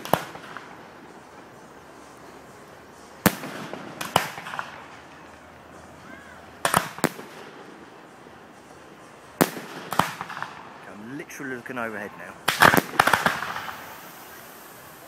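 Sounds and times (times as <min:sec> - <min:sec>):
firework bangs: 0:00.0 - 0:01.4, 0:03.0 - 0:05.4, 0:06.2 - 0:08.1, 0:09.0 - 0:15.0
firework crackle: 0:00.0 - 0:15.0.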